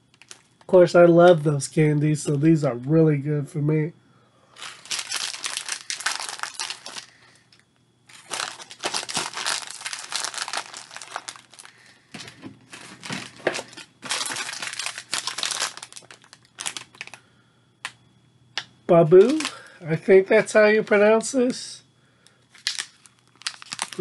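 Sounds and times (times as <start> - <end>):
plastic packaging crinkling: 0.0 - 0.7, 4.6 - 17.2, 19.2 - 19.8, 22.5 - 24.0.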